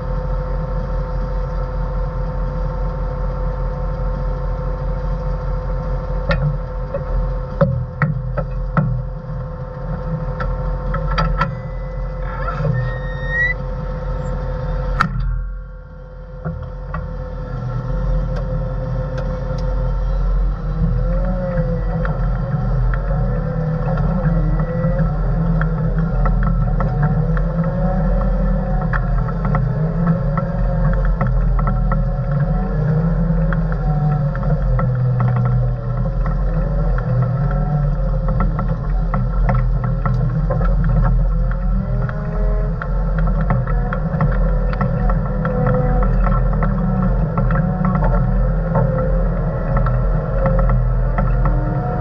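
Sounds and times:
diesel engine running with whine: 0.0 - 52.0
light ticks and rattles: 16.4 - 52.0.

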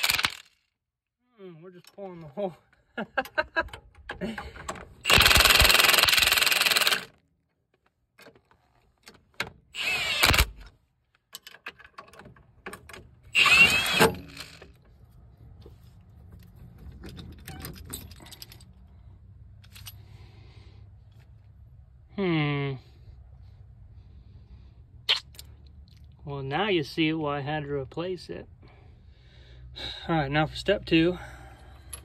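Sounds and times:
impact wrench bursts: 0.0 - 0.5, 5.0 - 7.1, 9.8 - 10.6, 13.4 - 14.7
metallic clinks and rattles: 16.4 - 18.9, 19.6 - 20.1.

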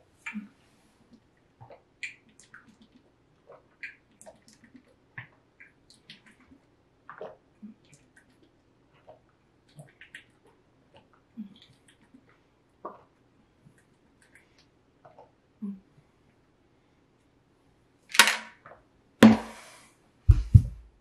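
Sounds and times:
person gulping a drink: 1.6 - 16.0.

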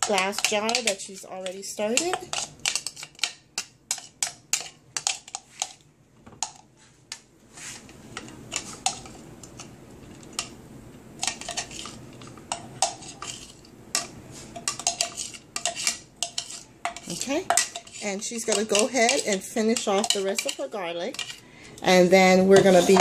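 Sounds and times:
spoon scraping plastic container: 11.2 - 13.7, 14.4 - 21.4, 22.5 - 23.0.

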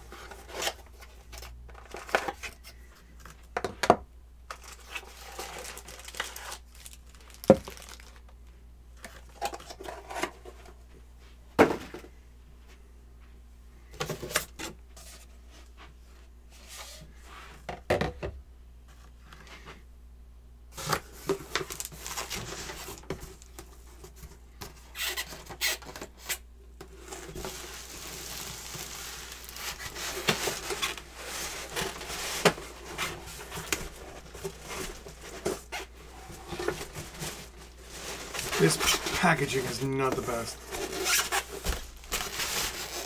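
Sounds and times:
packaging rustling: 4.5 - 8.3, 20.8 - 23.7, 26.8 - 43.0.

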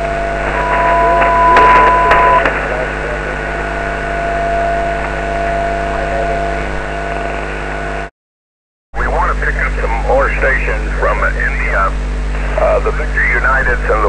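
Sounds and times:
carrier whistle: 0.0 - 7.2
garbled radio signal: 0.0 - 8.1, 9.0 - 14.0
radio band hiss and hum: 0.0 - 8.1, 9.0 - 14.0.

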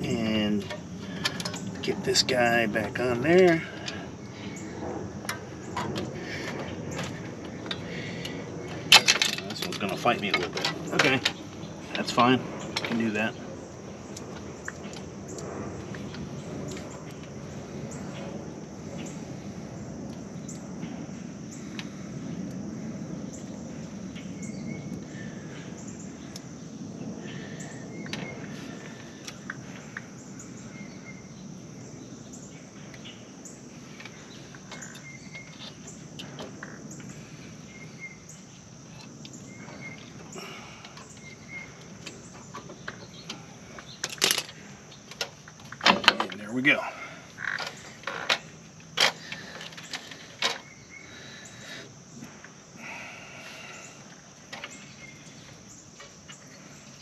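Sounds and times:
low rumble: 0.0 - 31.1
bird chirps: 30.4 - 36.0, 39.3 - 44.0
high hiss: 32.5 - 57.0.

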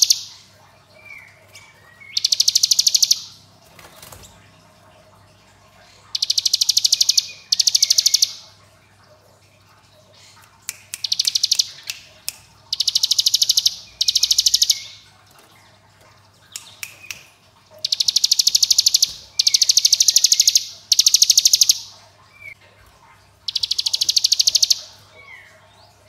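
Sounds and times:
bird trilling song: 0.0 - 3.4, 6.1 - 8.5, 10.9 - 12.1, 12.7 - 15.0, 16.5 - 22.6, 23.5 - 26.0.

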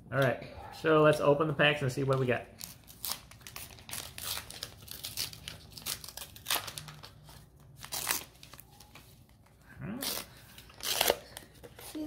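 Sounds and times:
card pack wrappers crinkling: 2.0 - 9.1.

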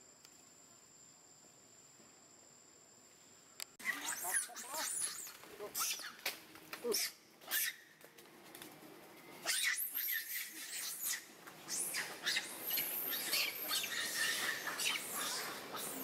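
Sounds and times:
monkeys screeching: 3.8 - 6.2, 6.9 - 7.9, 9.4 - 16.0.

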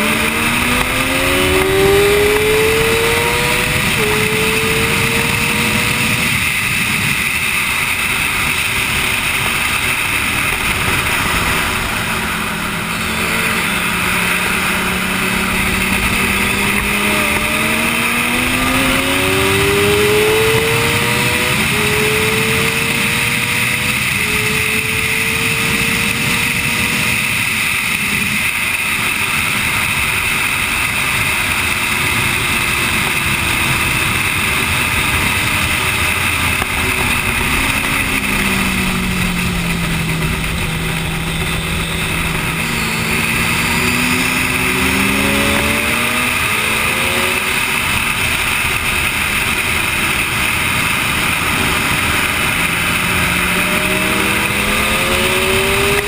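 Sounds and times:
motorbike engine revving: 0.0 - 56.0
wind rush: 0.0 - 56.0.

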